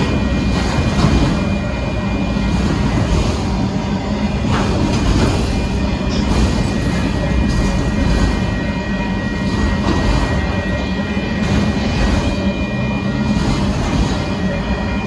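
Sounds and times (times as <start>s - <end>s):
train wheels rumbling on rails: 0.0s - 15.0s
steady high tone: 5.5s - 15.0s.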